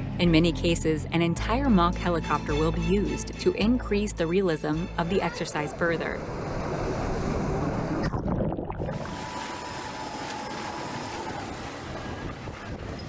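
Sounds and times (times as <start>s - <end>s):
water churning and splashing: 5.9s - 13.0s
steady rush of water: 6.2s - 13.0s.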